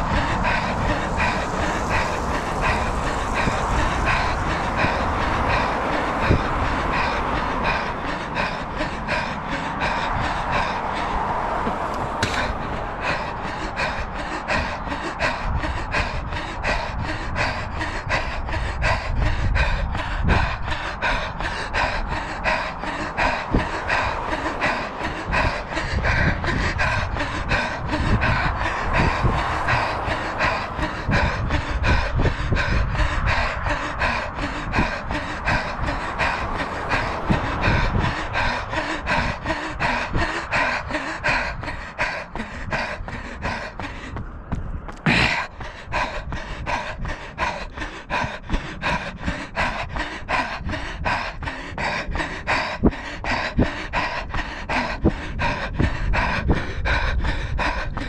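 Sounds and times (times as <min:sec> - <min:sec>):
runner panting: 0:00.0 - 0:58.0
footfalls on asphalt: 0:11.6 - 0:12.6.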